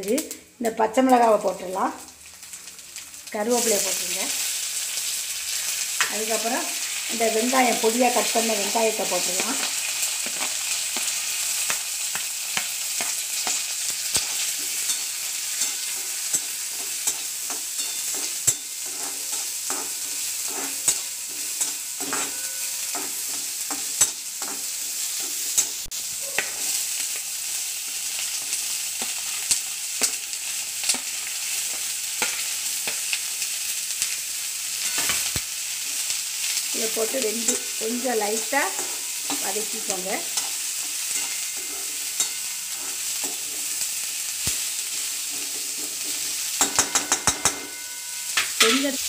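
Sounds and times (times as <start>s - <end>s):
food sizzling in hot oil: 0.0s - 49.0s
metal spatula scraping pan: 13.0s - 26.8s, 37.0s - 44.0s, 44.6s - 49.0s.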